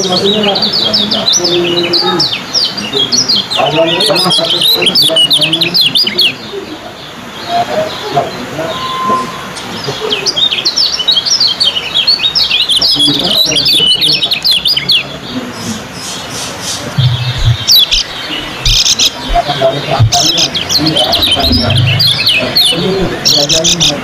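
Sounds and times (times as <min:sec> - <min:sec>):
birds twittering chatter: 0:00.0 - 0:24.0
low thumps: 0:17.0 - 0:23.2.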